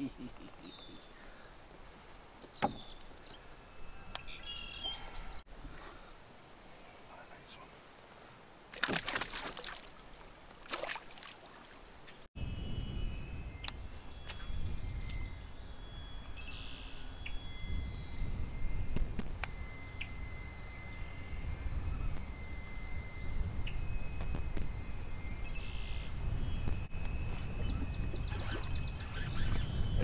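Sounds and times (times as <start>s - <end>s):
birds calling: 0.0s - 1.6s, 2.3s - 5.5s, 27.4s - 30.0s
wind buffeting microphone: 12.4s - 15.7s, 21.4s - 30.0s.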